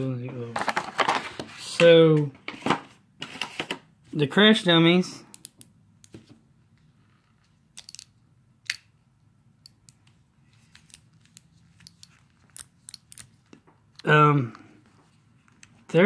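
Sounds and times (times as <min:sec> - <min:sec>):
plastic parts clicking: 0:07.7 - 0:08.9, 0:10.7 - 0:14.1.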